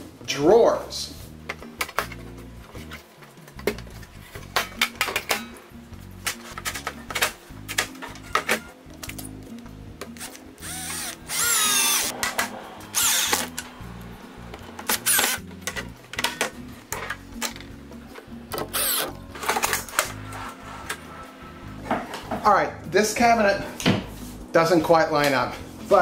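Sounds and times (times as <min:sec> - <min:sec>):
cordless screw gun whirring: 0:10.6 - 0:12.1, 0:12.9 - 0:13.6, 0:18.7 - 0:19.1.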